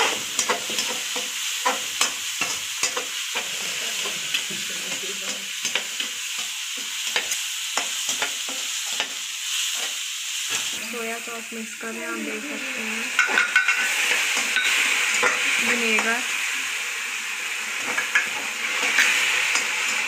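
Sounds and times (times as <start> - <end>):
spatula scraping and tapping pan: 0.0 - 10.7, 13.2 - 16.2, 17.8 - 20.0
vegetables sizzling in hot oil: 0.0 - 20.0.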